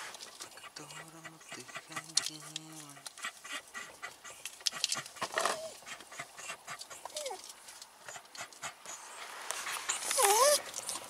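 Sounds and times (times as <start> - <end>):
dog whimpering: 5.2 - 7.5, 9.9 - 10.7.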